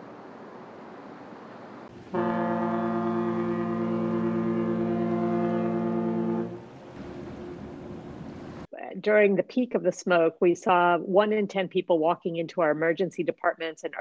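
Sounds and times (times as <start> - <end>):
faint steady hiss: 0.0 - 8.9
ferry horn blast: 1.9 - 7.6.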